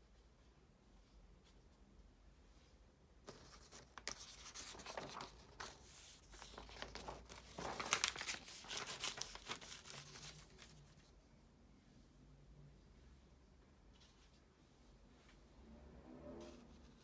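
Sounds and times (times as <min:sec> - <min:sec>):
paper pages rustling: 0:03.2 - 0:11.1.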